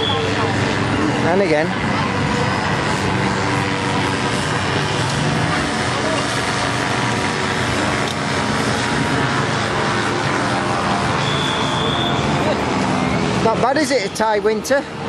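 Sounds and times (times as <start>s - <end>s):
crowd talking: 0.0s - 15.0s
vehicle engines running: 0.0s - 15.0s.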